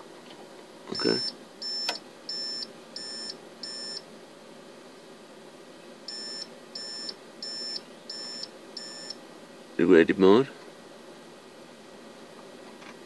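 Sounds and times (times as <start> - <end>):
cooling fans whirring: 0.0 - 13.0
alarm buzzer beeping: 0.9 - 4.0, 6.1 - 9.2.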